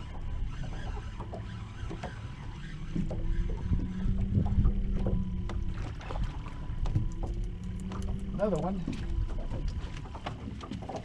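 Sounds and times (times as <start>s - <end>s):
steady low hum: 0.0s - 11.0s
water lapping against boat hull: 0.0s - 11.0s
wind rumbling on microphone: 2.6s - 11.0s.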